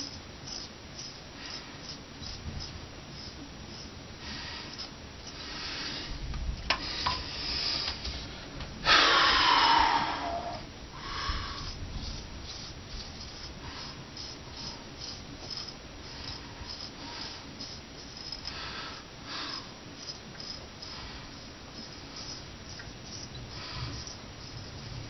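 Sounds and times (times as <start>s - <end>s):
razor scraping beard stubble: 0.0s - 5.6s, 11.0s - 25.0s
loud breath through nose: 4.2s - 6.2s, 6.8s - 12.7s, 13.5s - 17.8s, 18.4s - 19.8s, 20.8s - 22.4s, 23.5s - 24.2s.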